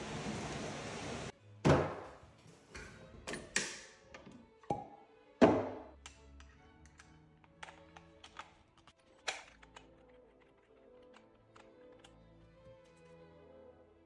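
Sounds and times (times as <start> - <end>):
faint background music: 1.3 - 14.0.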